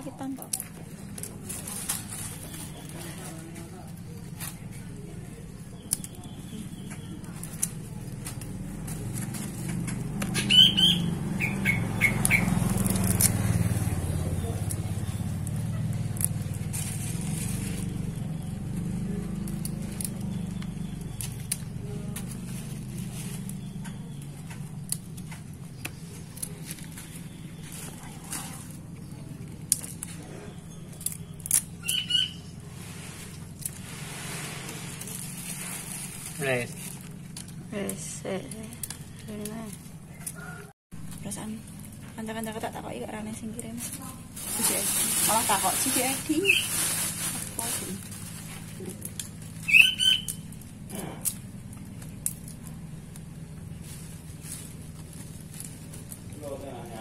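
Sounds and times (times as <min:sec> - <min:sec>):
clicks and rustles of hands: 0:00.3 - 0:10.5, 0:11.8 - 0:32.5, 0:43.8 - 0:56.4
bird chirps: 0:10.3 - 0:12.9, 0:25.6 - 0:32.7, 0:46.4 - 0:46.8, 0:49.6 - 0:50.6
high bird call: 0:10.4 - 0:12.6, 0:31.8 - 0:32.6, 0:49.6 - 0:50.4.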